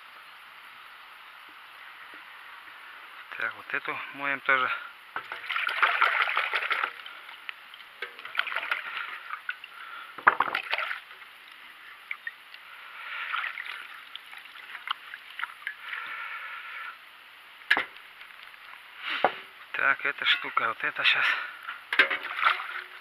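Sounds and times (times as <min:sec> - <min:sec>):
liquid splashing in metal bucket: 0:05.2 - 0:12.4, 0:13.3 - 0:15.9, 0:21.9 - 0:23.0.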